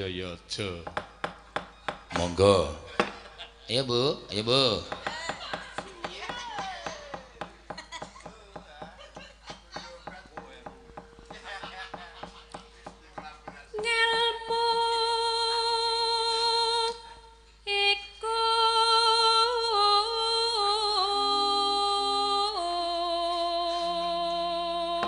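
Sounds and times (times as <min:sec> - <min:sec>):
woman singing into a microphone: 0:13.7 - 0:25.0.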